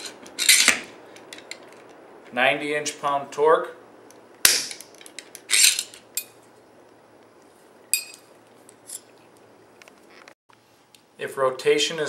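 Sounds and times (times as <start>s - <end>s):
metal instruments clicking and clinking: 4.5s - 6.4s, 7.9s - 9.2s.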